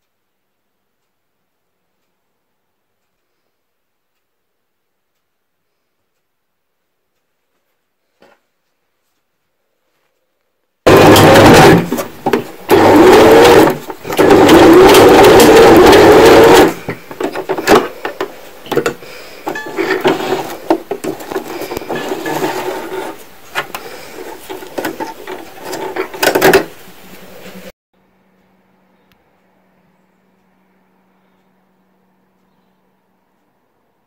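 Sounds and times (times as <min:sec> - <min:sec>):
sewing machine stitching: 0:10.9 - 0:26.7.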